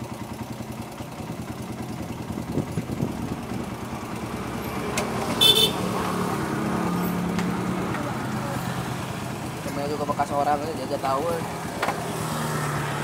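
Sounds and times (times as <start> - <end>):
motorcycle engine idling: 0.0 - 12.2
short high horn toot: 5.4 - 5.9.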